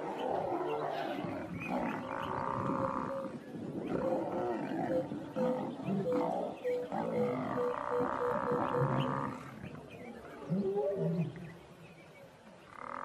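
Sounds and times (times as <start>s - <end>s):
lions growling and snarling: 0.0s - 11.4s
short repeating animal call: 4.9s - 9.5s.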